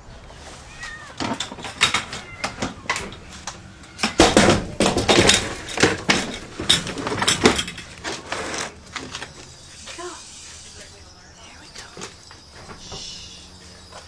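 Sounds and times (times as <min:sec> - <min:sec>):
plastic pet carriers clattering: 0:01.0 - 0:09.4.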